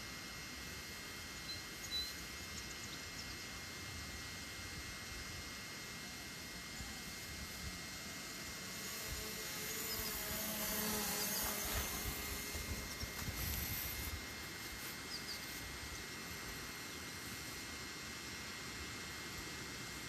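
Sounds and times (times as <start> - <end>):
steady hiss: 0.0 - 20.0
drone motors whining: 5.7 - 18.2.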